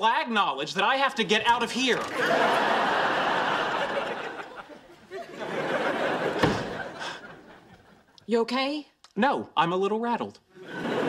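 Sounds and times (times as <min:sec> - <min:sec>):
studio audience laughing: 0:01.9 - 0:08.2, 0:10.6 - 0:11.0
door slamming shut: 0:06.2 - 0:07.0.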